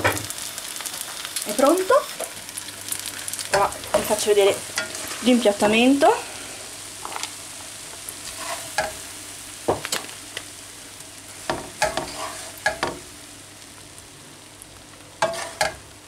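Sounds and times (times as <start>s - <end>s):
hot pan sizzling: 0.0s - 16.0s
spatula scraping frying pan: 3.5s - 5.4s, 8.2s - 9.0s, 11.4s - 13.0s, 15.2s - 15.8s.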